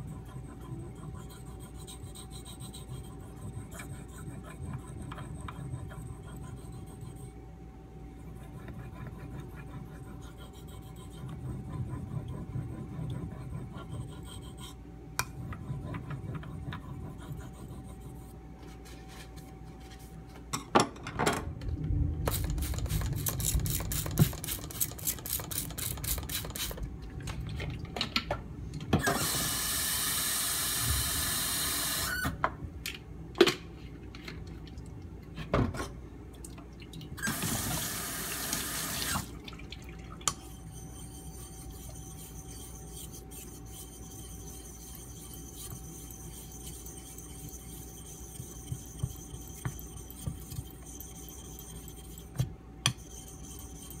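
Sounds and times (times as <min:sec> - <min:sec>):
knife sharpening on a stone: 0:40.4 - 0:54.0.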